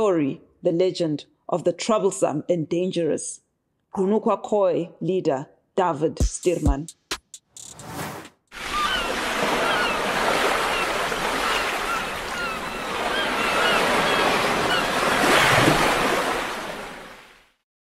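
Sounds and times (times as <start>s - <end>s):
ocean waves washing in: 7.8s - 17.5s.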